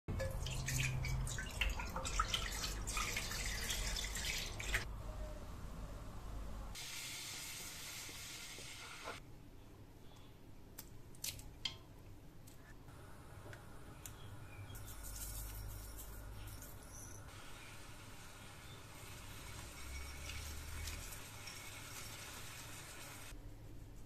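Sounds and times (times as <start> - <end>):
milk pouring and splashing: 0.2 - 4.9
milk boiling hiss: 17.3 - 23.4.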